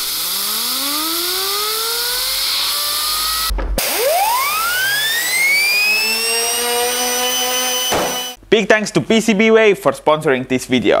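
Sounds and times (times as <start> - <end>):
compressor whine rising in pitch: 0.0 - 8.4.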